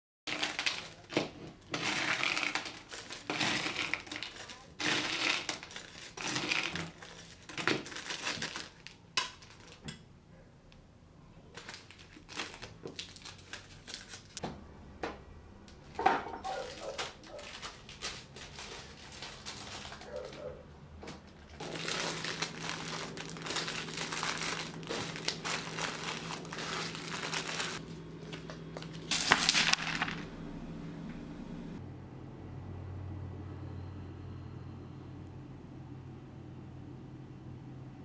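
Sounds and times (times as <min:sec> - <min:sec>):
plastic bags rustling: 0:00.3 - 0:09.9, 0:11.4 - 0:14.4, 0:15.8 - 0:30.3
steady low hum: 0:17.1 - 0:38.0.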